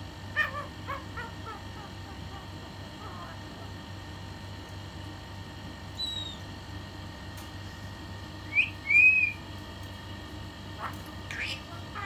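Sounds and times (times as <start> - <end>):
myna whistling: 6.0 - 6.4, 8.5 - 9.4.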